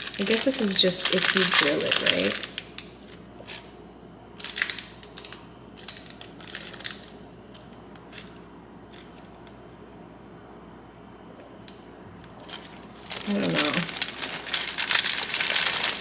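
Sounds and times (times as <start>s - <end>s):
plastic packet crinkling: 0.0s - 2.9s, 4.4s - 7.1s, 12.8s - 16.0s.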